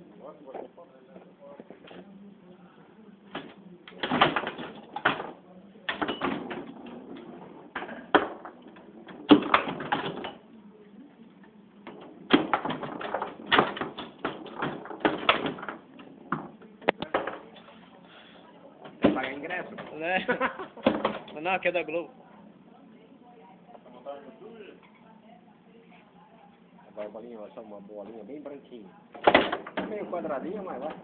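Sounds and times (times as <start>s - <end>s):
foosball ball cracking: 3.3s - 10.4s, 11.8s - 17.5s, 20.7s - 21.4s, 29.2s - 31.0s
foosball rods clacking: 3.4s - 10.4s, 11.8s - 17.7s, 20.7s - 21.4s, 29.2s - 31.0s.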